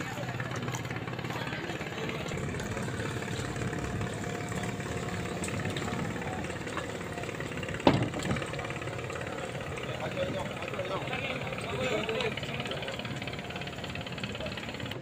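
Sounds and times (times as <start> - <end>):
boat engine idling: 0.0 - 15.0.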